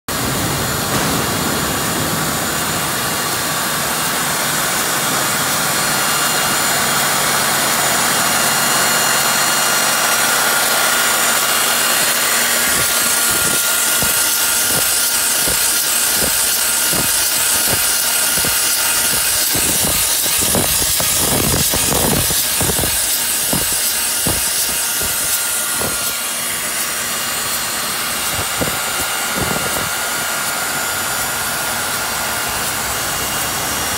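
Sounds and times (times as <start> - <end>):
motor humming and hissing: 0.1 - 33.9
steady whine: 0.1 - 33.9
cutting ticks and knocks: 12.0 - 26.2, 28.2 - 29.9.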